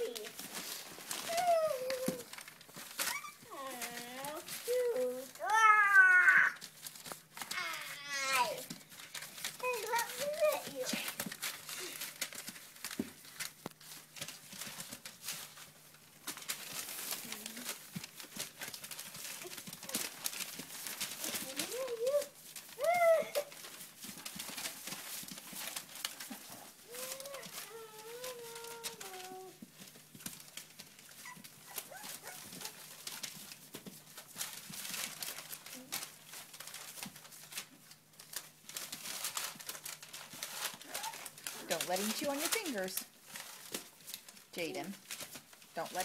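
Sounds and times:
newspaper crinkling: 0.0s - 46.0s
paws and claws scratching: 0.0s - 46.0s
puppy whine: 1.2s - 2.4s, 3.0s - 3.7s, 22.8s - 23.5s, 26.2s - 29.6s, 31.2s - 33.0s
puppy squeak: 3.0s - 3.5s.

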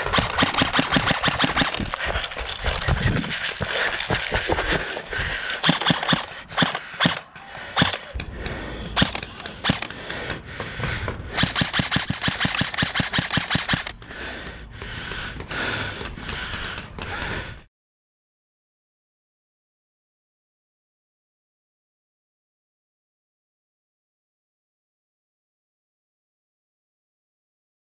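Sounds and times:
airsoft rifle shots: 0.0s - 2.2s, 5.6s - 8.2s, 9.0s - 10.0s, 11.3s - 14.0s.

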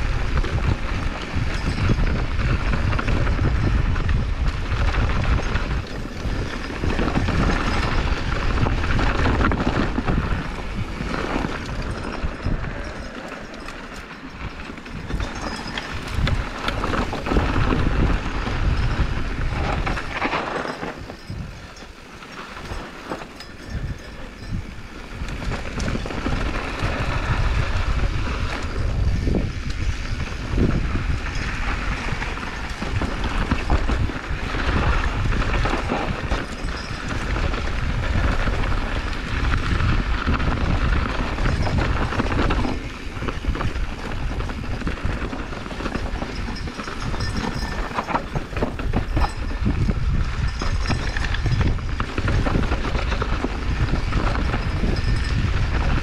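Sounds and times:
bike rattling over bumps: 0.0s - 56.0s
tyres rumbling on dirt: 0.0s - 56.0s
wind on microphone: 0.0s - 56.0s.

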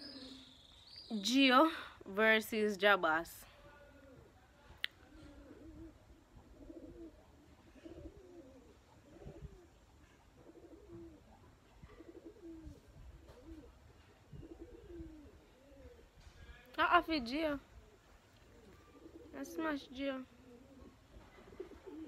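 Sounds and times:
faint low-pitched bird calls: 0.0s - 1.2s, 3.6s - 16.8s.

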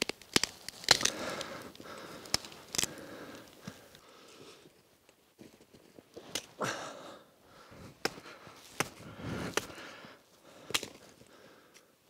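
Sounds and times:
crunching rustles: 0.0s - 4.0s
hatchet chopping branch: 8.0s - 9.8s, 10.7s - 11.0s.

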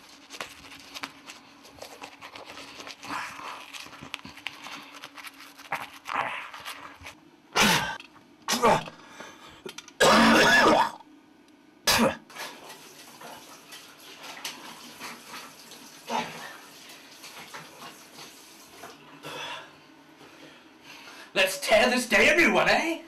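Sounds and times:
man clearing his throat: 7.6s - 8.9s, 10.0s - 11.0s, 11.8s - 12.3s
tap water running into sink: 12.5s - 19.0s.

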